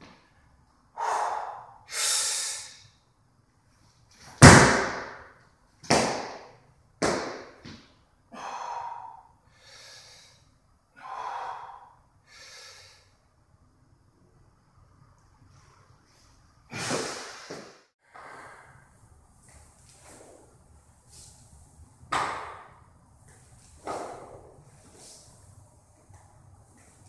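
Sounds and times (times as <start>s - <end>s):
heavy forceful breathing: 0.9s - 2.8s, 8.3s - 13.1s.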